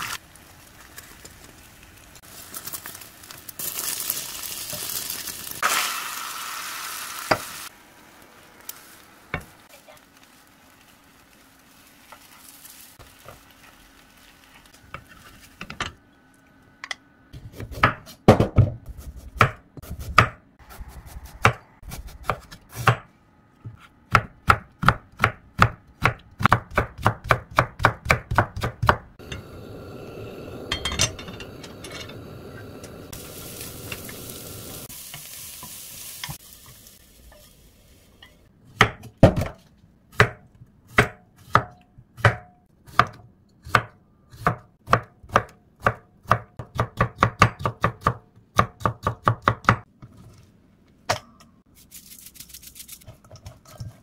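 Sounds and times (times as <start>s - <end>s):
egg sizzling in pan: 0.0s - 15.6s, 29.2s - 38.5s
steady hiss: 29.2s - 38.2s.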